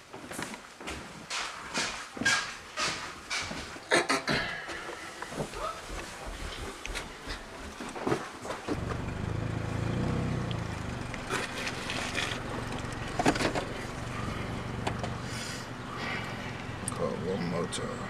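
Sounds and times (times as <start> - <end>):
car engine hum from inside cabin: 8.7 - 18.0.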